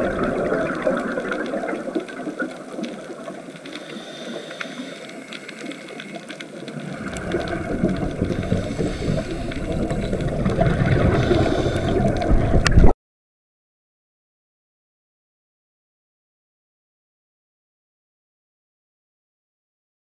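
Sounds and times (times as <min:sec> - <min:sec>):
faint underwater clicks: 0:00.0 - 0:12.9
underwater rushing water: 0:00.0 - 0:12.9.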